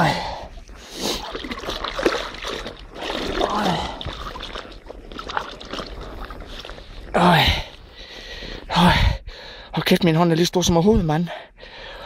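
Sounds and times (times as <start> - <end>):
water splashing and sloshing: 0.0 - 8.6.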